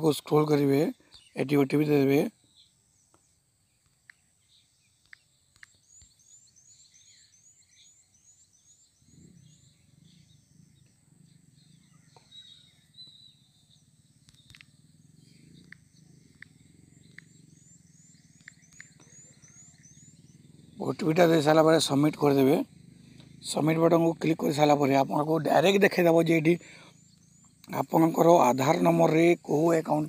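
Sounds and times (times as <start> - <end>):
faint low hum: 0.0 - 30.0
faint clicks: 5.0 - 6.2, 14.2 - 17.8, 18.4 - 19.3.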